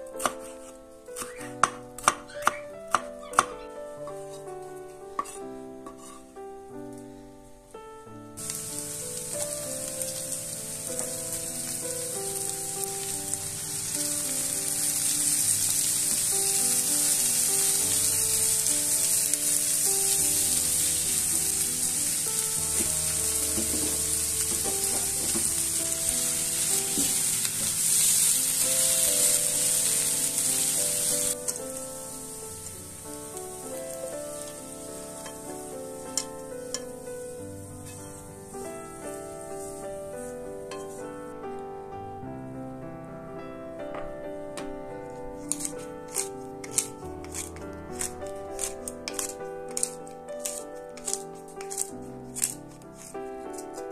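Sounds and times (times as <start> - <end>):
soft background music: 0.0 - 53.9
spatula stirring: 5.2 - 6.2, 33.7 - 38.8, 39.4 - 41.0, 45.4 - 53.9
vegetables sizzling in a frying pan: 8.4 - 41.0, 45.4 - 53.9.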